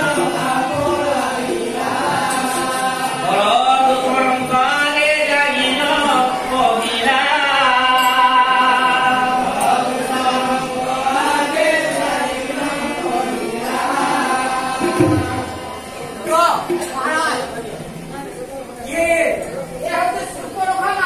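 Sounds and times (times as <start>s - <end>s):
voices chanting together: 0.0s - 16.8s.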